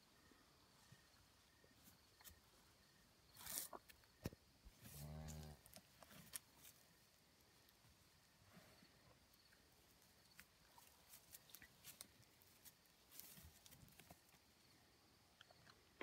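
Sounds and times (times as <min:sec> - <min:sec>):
soft rustle: 0:03.3 - 0:04.0, 0:08.3 - 0:14.4.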